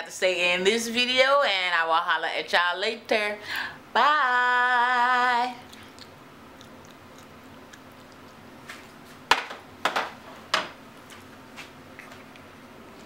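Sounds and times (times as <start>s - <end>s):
woman saying bye sing-song: 0.0s - 3.4s, 4.0s - 5.6s.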